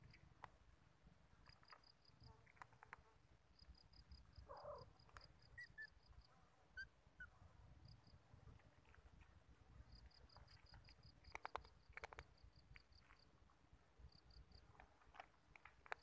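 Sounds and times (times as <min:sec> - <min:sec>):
insect chirping: 0:01.4 - 0:08.2, 0:08.8 - 0:13.3, 0:14.0 - 0:15.2.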